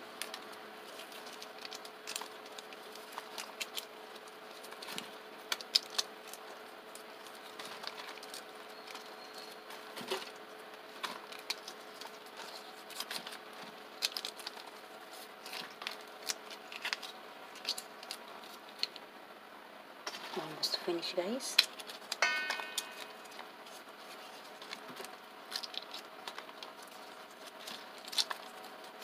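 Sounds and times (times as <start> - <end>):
peas knocking against metal bowl: 22.2 - 23.4.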